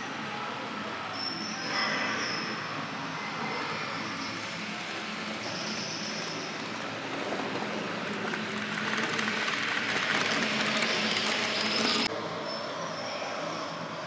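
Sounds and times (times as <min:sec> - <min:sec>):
steady hall hum: 0:00.0 - 0:14.0
model train running on track: 0:02.0 - 0:12.3.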